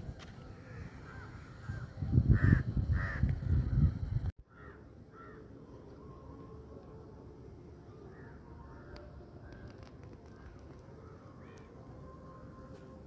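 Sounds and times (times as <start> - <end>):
low rumble: 0.0 - 4.3
crows cawing: 0.6 - 3.3, 4.5 - 5.4.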